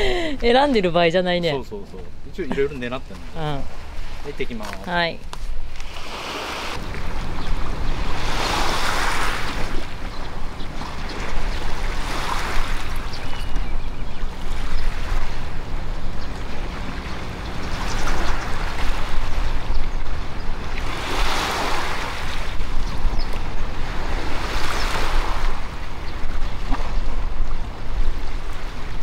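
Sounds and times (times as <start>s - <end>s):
wind rumble on microphone: 5.2s - 29.0s
small waves washing on rocks: 8.1s - 10.0s.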